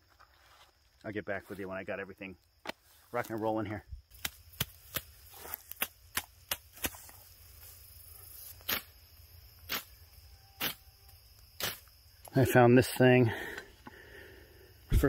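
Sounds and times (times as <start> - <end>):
sticks cracking: 4.1 - 7.2.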